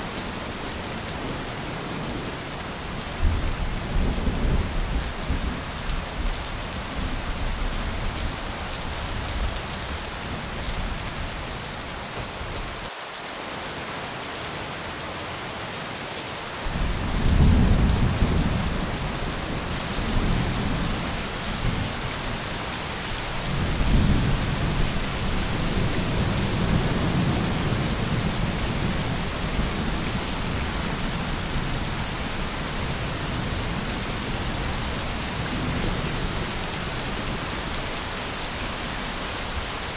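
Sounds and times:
steady rain: 0:00.0 - 0:39.9
rolling thunder: 0:16.7 - 0:22.6.

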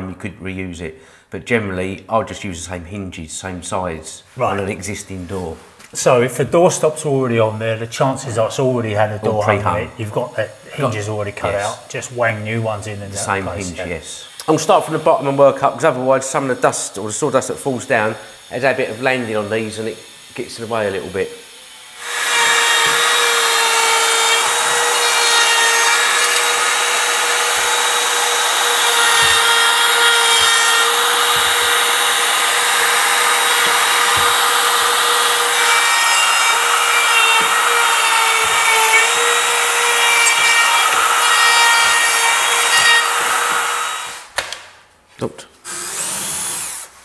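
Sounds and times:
router bit cutting wood: 0:08.9 - 0:44.4, 0:45.7 - 0:46.9
router motor whine: 0:21.4 - 0:44.2.

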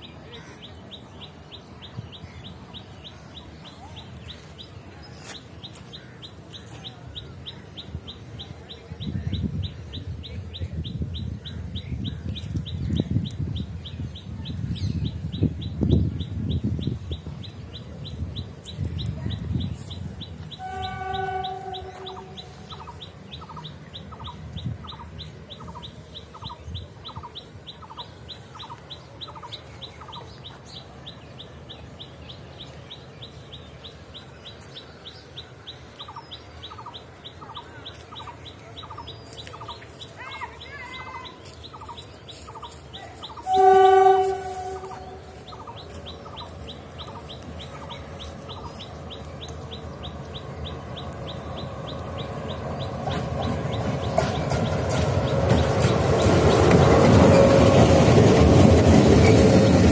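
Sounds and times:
birds clucking calls: 0:00.0 - 0:59.9
diesel locomotive rumble: 0:00.0 - 0:59.9
locomotive horn: 0:20.6 - 0:22.6, 0:43.4 - 0:45.5.

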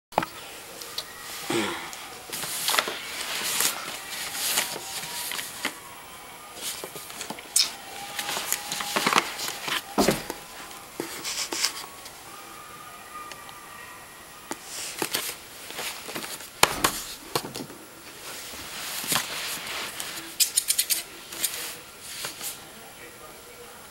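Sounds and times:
clothing rustling: 0:00.6 - 0:05.8, 0:06.5 - 0:12.1, 0:14.7 - 0:22.6.

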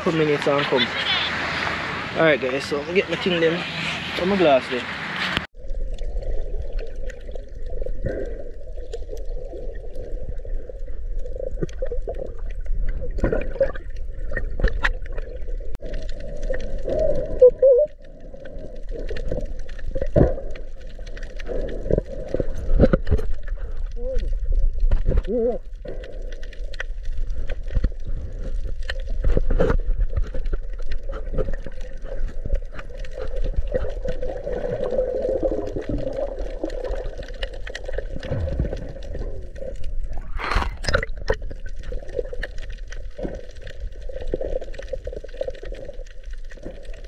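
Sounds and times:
underwater gurgling and sloshing: 0:00.0 - 0:47.0
bubbling: 0:05.4 - 0:47.0
underwater clicks: 0:11.1 - 0:47.0.

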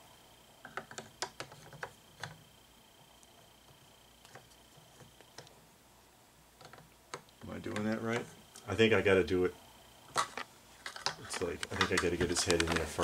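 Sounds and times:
light clicks and taps: 0:10.2 - 0:13.0.

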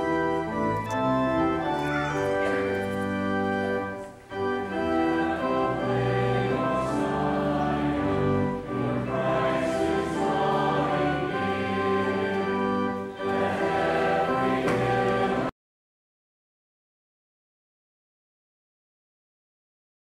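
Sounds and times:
organ playing chords: 0:00.0 - 0:15.5
choir singing: 0:03.8 - 0:15.5.

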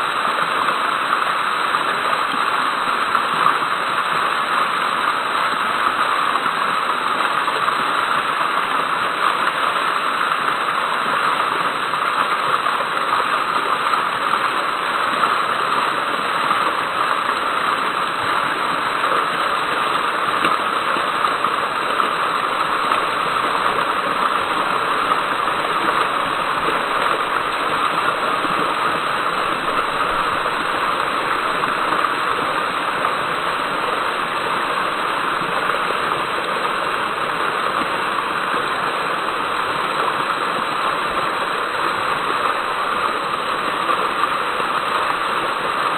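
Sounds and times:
fountain water splashing: 0:00.0 - 0:45.9.

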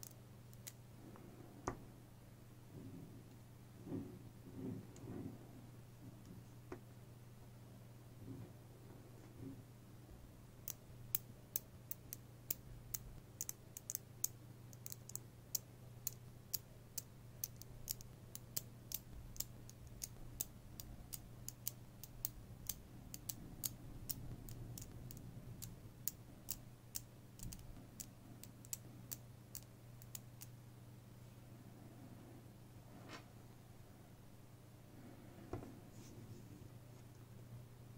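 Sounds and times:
faint low hum: 0:00.0 - 0:37.9
magnet balls clicking together: 0:10.6 - 0:30.5.

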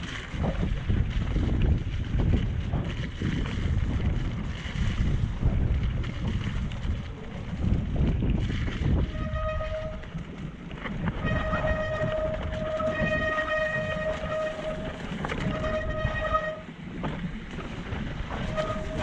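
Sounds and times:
tyres rumbling on dirt trail: 0:00.0 - 0:19.0
wind on microphone: 0:00.0 - 0:19.0
bike brakes squealing: 0:18.4 - 0:19.0.

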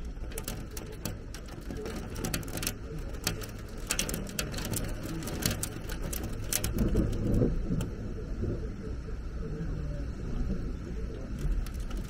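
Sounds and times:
rain and hail striking roofs: 0:00.0 - 0:08.3, 0:11.2 - 0:12.0
low rumble: 0:00.0 - 0:12.0.

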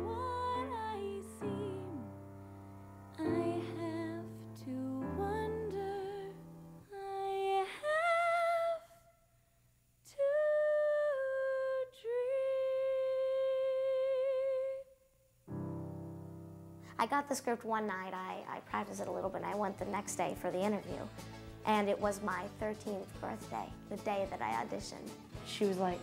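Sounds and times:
girl singing with vibrato: 0:00.0 - 0:02.2, 0:03.2 - 0:09.0, 0:10.1 - 0:14.9
instrumental accompaniment: 0:19.0 - 0:26.0.

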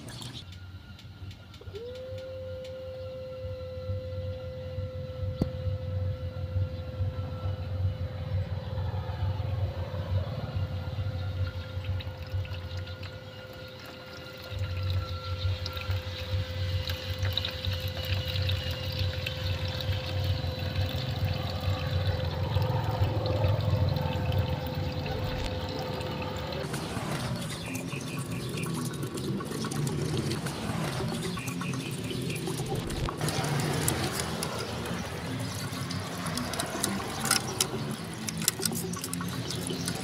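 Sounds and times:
water pump humming: 0:00.0 - 0:40.0
low rumble: 0:02.4 - 0:13.6, 0:14.5 - 0:38.2
water splashing and pouring: 0:11.4 - 0:40.0.

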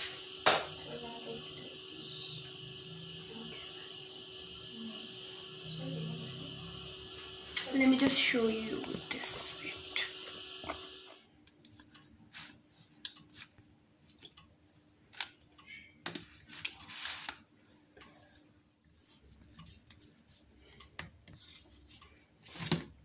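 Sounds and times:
faint hum: 0:00.0 - 0:11.9.

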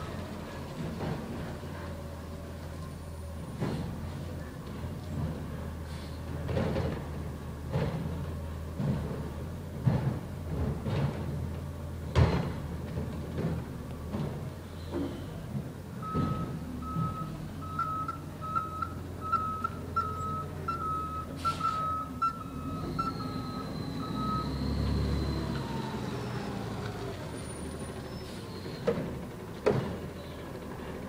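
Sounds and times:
truck engine running: 0:00.0 - 0:31.0
truck engine rising whine: 0:10.6 - 0:31.0
truck reversing alarm beeping: 0:16.0 - 0:29.5.

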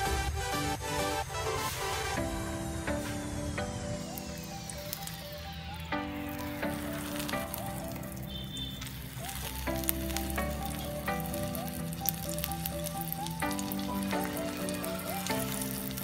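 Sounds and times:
background music of held notes: 0:00.0 - 0:16.0
egg roll sizzling in oil: 0:04.0 - 0:16.0.

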